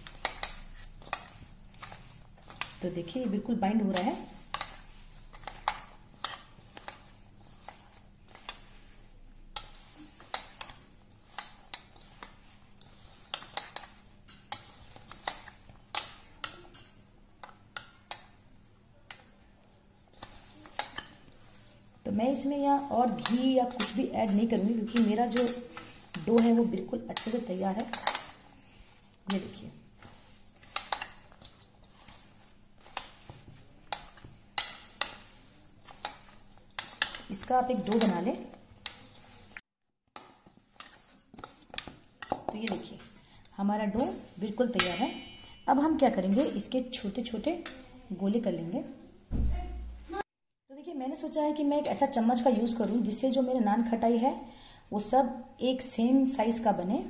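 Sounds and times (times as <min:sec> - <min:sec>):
hand kneading dough in metal bowl: 0:00.0 - 0:50.2, 0:51.1 - 0:54.4
clinks against metal bowl: 0:44.8 - 0:45.7.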